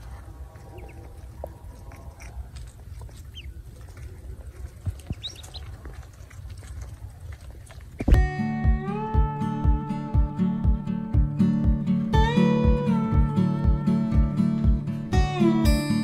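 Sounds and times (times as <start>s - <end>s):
ducklings peeping: 0.0s - 8.2s.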